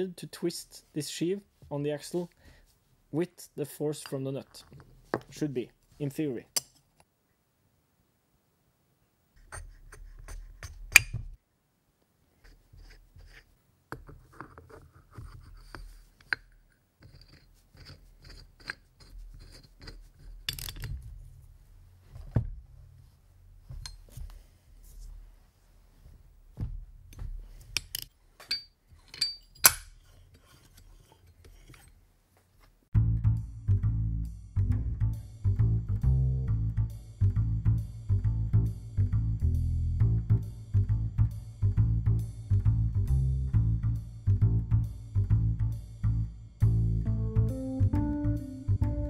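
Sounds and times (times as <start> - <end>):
metal tools clinking and scraping: 17.0 - 21.0, 27.7 - 32.0
music: 32.9 - 49.0.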